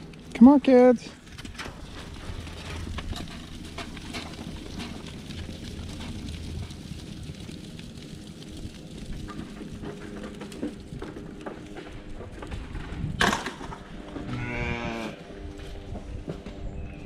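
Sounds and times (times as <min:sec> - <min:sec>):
goat kids bleating: 0:14.3 - 0:15.2.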